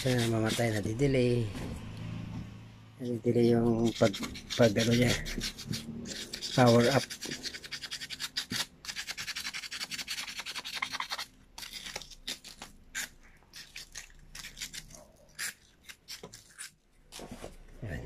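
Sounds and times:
sandpaper rubbing on metal: 0.0s - 0.9s, 3.7s - 11.2s.

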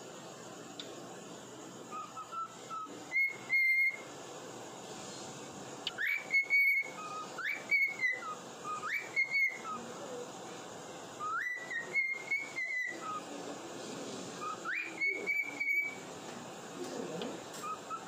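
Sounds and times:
cockatiel whistling a tune: 1.9s - 4.1s, 5.9s - 9.8s, 11.2s - 13.2s, 14.4s - 16.0s, 17.6s - 18.0s.

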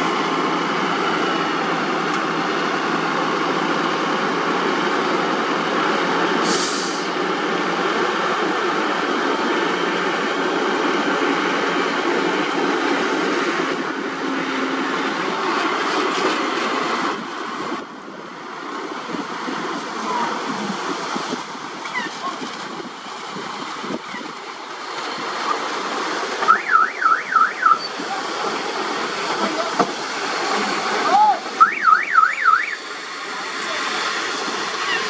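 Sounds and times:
truck engine running: 0.0s - 35.0s
warbling whistle: 26.5s - 27.9s, 31.6s - 32.8s.

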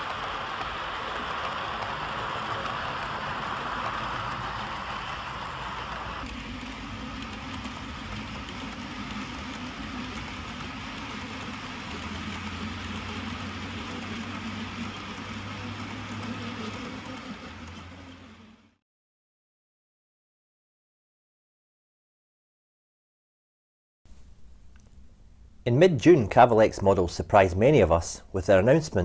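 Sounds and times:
low engine-like drone: 0.0s - 18.8s
model train rolling noise: 0.0s - 18.8s, 24.1s - 29.0s.

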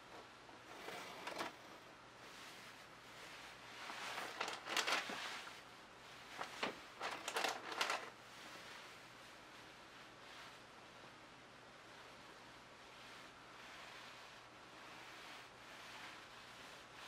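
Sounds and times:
rustling of canvas and plastic: 0.0s - 10.7s.

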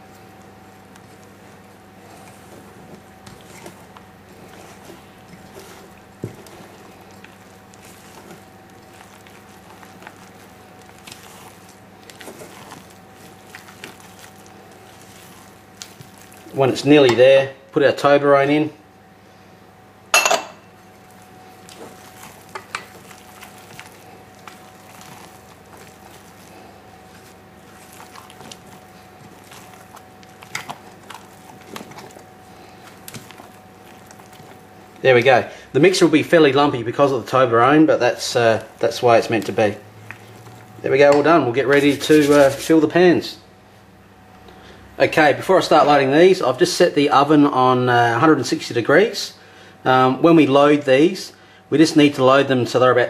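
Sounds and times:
faint steady hum: 0.0s - 53.0s
spatula scraping batter in bowl: 0.3s - 17.2s, 20.9s - 36.3s, 38.4s - 42.9s
utensil scraping metal bowl: 21.6s - 35.0s, 38.8s - 42.8s.

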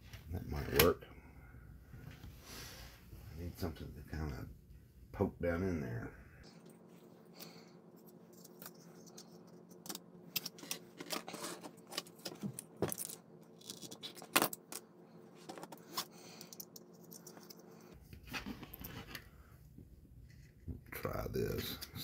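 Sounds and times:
plastic parts clicking and clattering: 8.4s - 14.8s, 15.4s - 17.6s.

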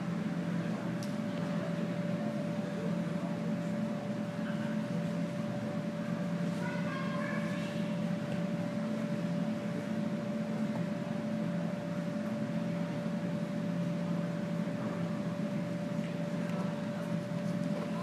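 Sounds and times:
mechanical hum: 0.0s - 18.0s.

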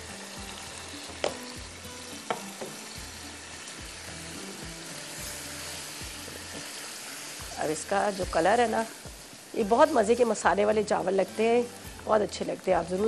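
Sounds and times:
rice sizzling in a wok: 0.0s - 13.0s
knocks on the pan: 1.2s - 1.4s, 2.3s - 2.8s.

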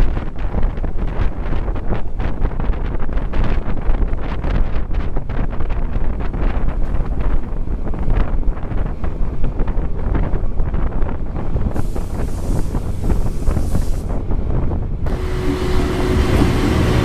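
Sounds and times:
train rumble: 0.0s - 17.0s
wind buffeting microphone: 0.0s - 17.0s
wheels clattering on track: 6.6s - 17.0s
steady hiss: 11.7s - 14.2s.

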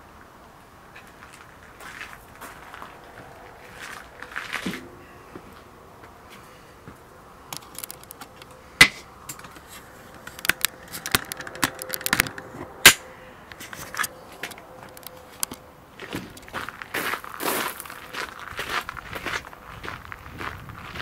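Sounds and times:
handling clicks and clinks: 7.5s - 16.6s.

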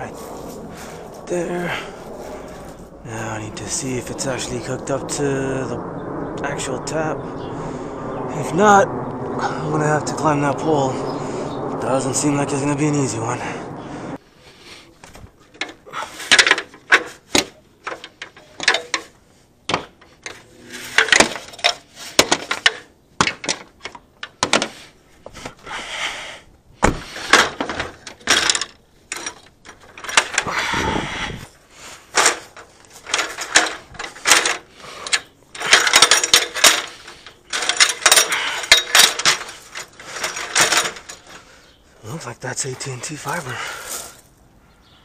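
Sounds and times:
ladder rattling and scraping: 14.6s - 25.9s, 26.8s - 44.3s
ladder rungs clanking: 15.0s - 25.6s, 26.8s - 31.1s, 32.0s - 41.5s.

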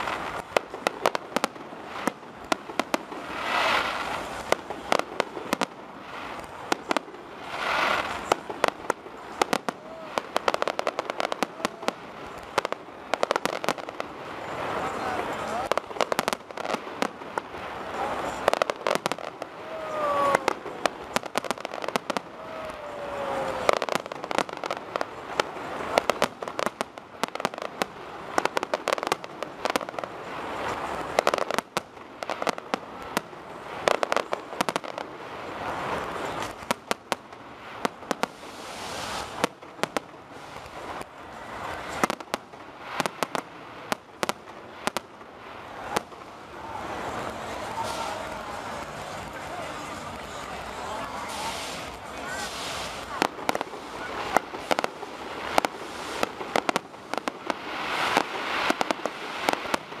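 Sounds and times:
fireworks sparks crackling: 0.0s - 60.0s.

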